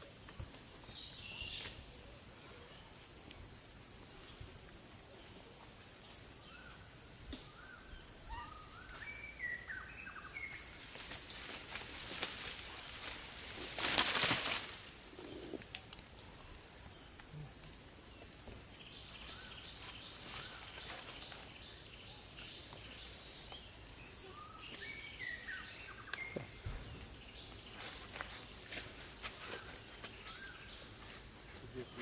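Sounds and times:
high insect whine: 0.0s - 32.0s.

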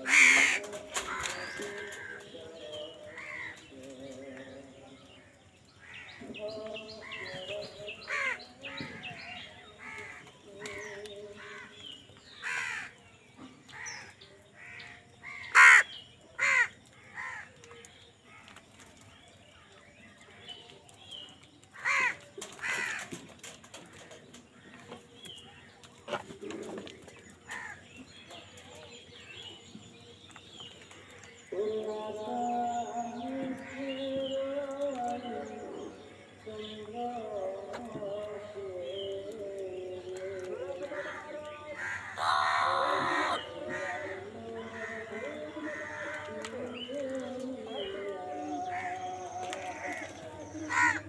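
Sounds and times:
crows cawing: 0.0s - 2.4s, 3.1s - 3.7s, 8.1s - 9.0s, 9.8s - 11.8s, 12.4s - 13.0s, 13.7s - 17.7s, 21.7s - 23.2s, 27.5s - 27.9s, 40.2s - 46.6s, 48.7s - 51.0s.

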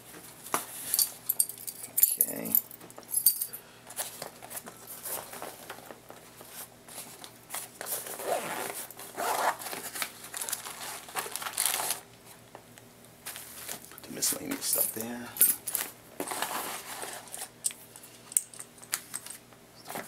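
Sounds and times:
zipper being pulled open: 8.0s - 9.7s
wrapped packets crinkling: 9.4s - 12.0s.

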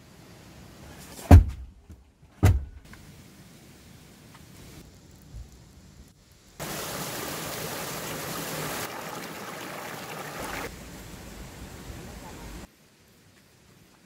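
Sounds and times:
mountain stream rushing: 6.6s - 11.9s.

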